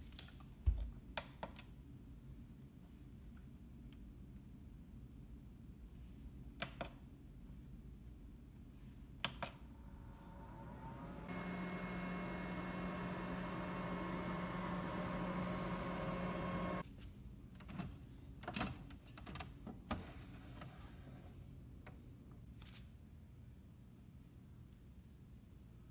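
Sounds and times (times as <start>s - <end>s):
dehydrator fan humming: 9.6s - 16.8s.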